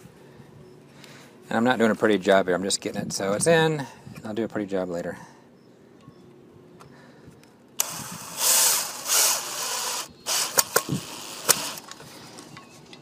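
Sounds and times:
cordless drill driving screw into wood: 0:07.8 - 0:12.0
sharp clicks: 0:10.3 - 0:12.0.

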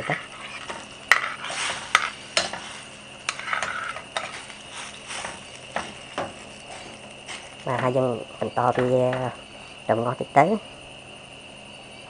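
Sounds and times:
ladle scraping plate: 0:00.0 - 0:07.6
steady hiss: 0:00.0 - 0:12.0.

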